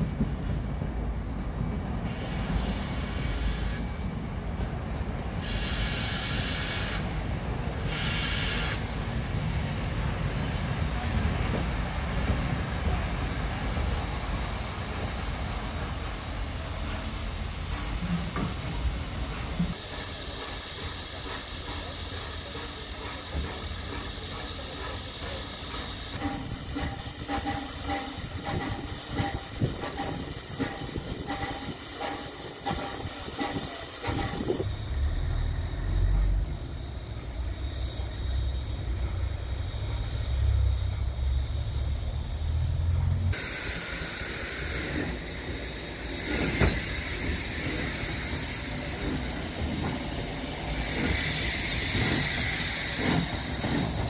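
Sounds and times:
heavy low rumble of train: 0.0 - 54.0
steam hissing: 2.1 - 4.1, 5.2 - 54.0
rail clicks: 11.2 - 35.3, 42.9 - 54.0.

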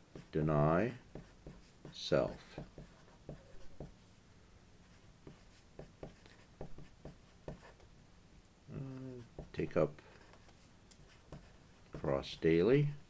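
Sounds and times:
marker writing on paper: 1.1 - 4.0, 4.9 - 7.8, 10.2 - 12.2.

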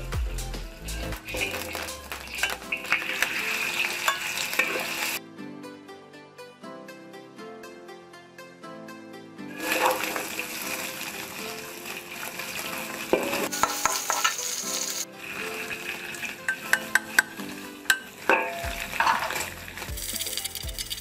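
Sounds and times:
pork sizzling in a wok: 0.9 - 5.2, 9.5 - 21.0
metal spatula scraping wok: 1.2 - 5.2, 9.5 - 21.0
metal clinking on wok: 1.3 - 5.2, 9.6 - 10.8, 12.4 - 14.9, 15.7 - 21.0.

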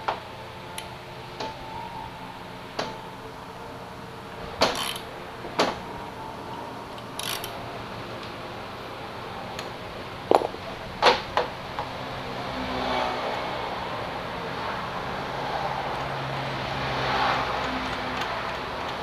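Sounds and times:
metal tools clinking on metal: 4.7 - 5.0, 7.0 - 7.6.

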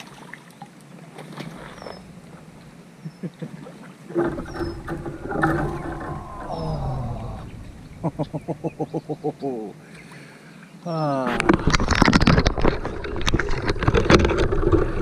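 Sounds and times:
man laughing: 3.0 - 3.7, 6.2 - 9.8
man crying out excitedly: 5.7 - 7.6.

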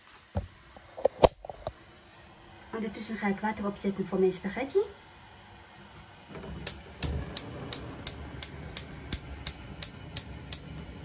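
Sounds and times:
gas flame rushing: 5.1 - 11.0
spark igniter clicking: 6.3 - 11.0.

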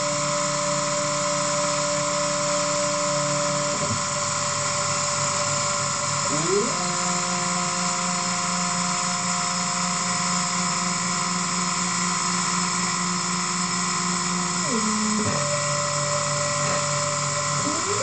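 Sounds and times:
feed drives whining: 13.5 - 18.0.

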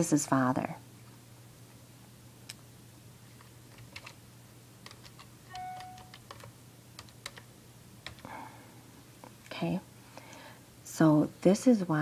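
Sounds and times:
keyboard keys clicking: 3.7 - 4.2, 4.8 - 8.2.

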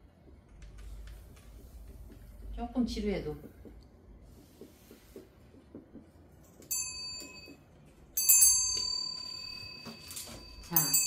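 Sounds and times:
small metal bell ringing: 6.6 - 11.0.

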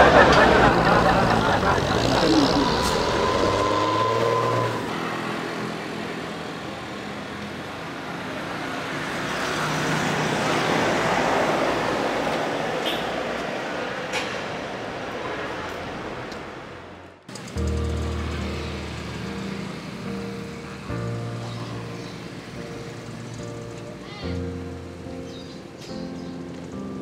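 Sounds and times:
vehicles going by: 0.0 - 27.0
steady high tone: 0.2 - 6.1.

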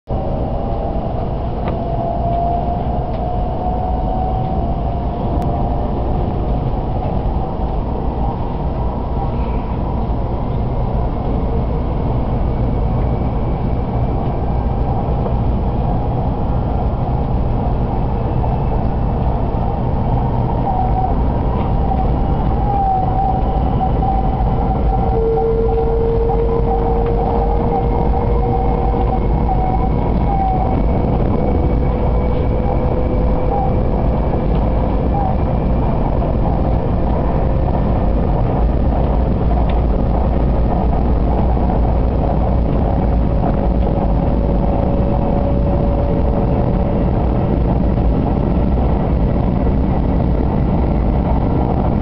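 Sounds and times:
train running rumble: 0.1 - 52.0.

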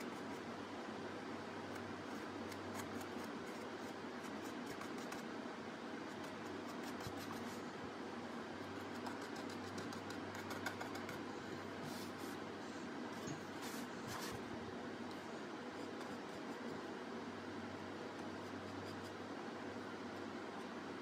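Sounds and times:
steady background hum: 0.0 - 21.0
paintbrush scratching: 8.6 - 12.4.

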